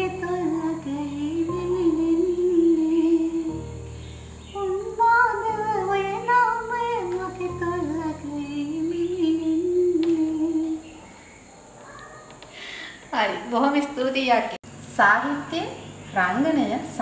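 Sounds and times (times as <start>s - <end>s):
woman singing slow melody: 0.0s - 11.0s.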